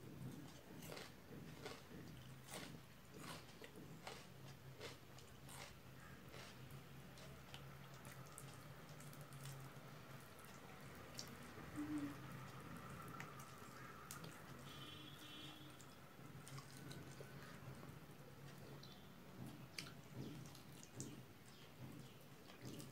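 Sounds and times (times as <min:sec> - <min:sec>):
fingers mixing food on plate: 0:00.1 - 0:14.6
chewing: 0:00.1 - 0:14.7, 0:15.8 - 0:22.9.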